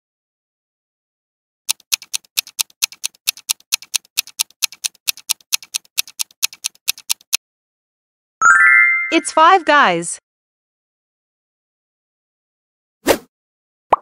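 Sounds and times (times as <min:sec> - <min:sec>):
fast clock ticking: 0:01.7 - 0:07.4.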